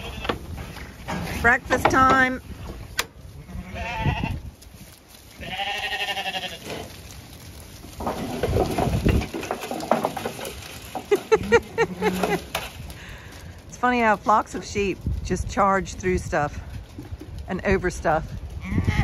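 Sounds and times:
hooves scuffling: 0.0s - 19.0s
sheep bleating: 3.4s - 4.4s, 5.4s - 6.8s.

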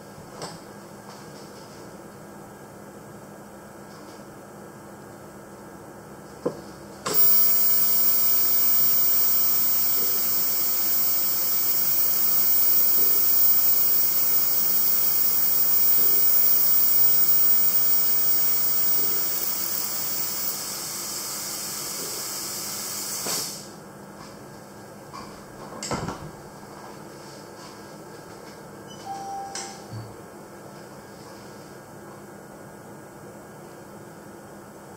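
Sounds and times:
click: 7.1s - 20.6s
ultrasonic dental unit hissing: 7.1s - 20.8s.

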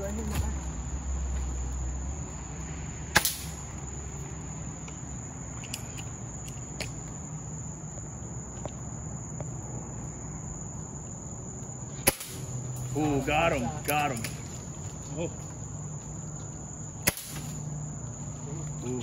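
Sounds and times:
high-pitched insect trill: 0.0s - 19.0s
air rifle shot: 17.0s - 17.6s.

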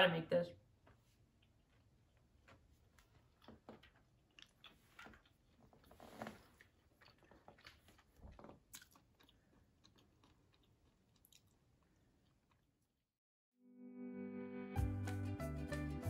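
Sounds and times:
faint chewing: 0.9s - 12.9s
music: 13.6s - 16.0s.

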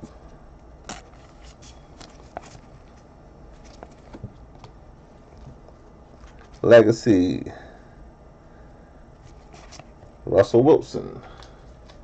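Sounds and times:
trading cards being handled: 0.8s - 6.7s, 9.2s - 10.1s.

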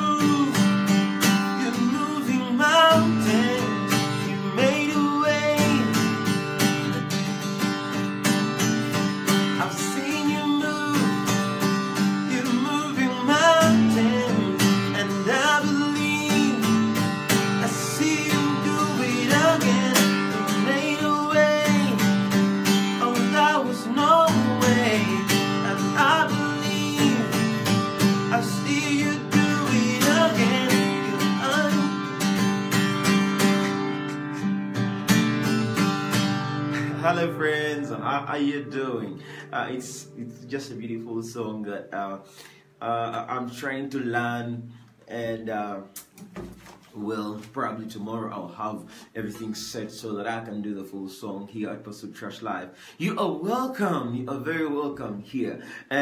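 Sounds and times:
man singing: 0.0s - 6.4s, 9.4s - 34.6s, 36.7s - 42.2s, 42.8s - 45.8s, 53.0s - 56.0s
acoustic guitar strumming: 0.0s - 47.3s.

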